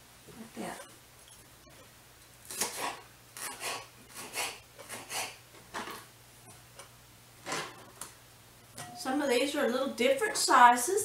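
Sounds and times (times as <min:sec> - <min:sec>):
knife slicing bell pepper: 0:02.5 - 0:05.4.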